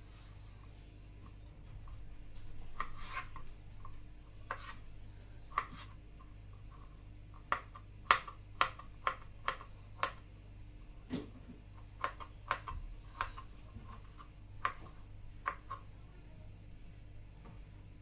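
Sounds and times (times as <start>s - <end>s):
knife cutting vegetables: 2.7s - 3.5s, 4.4s - 4.8s, 11.9s - 14.8s
knife scraping cutting board: 2.7s - 3.5s, 4.4s - 4.9s, 5.5s - 6.0s, 12.0s - 15.9s.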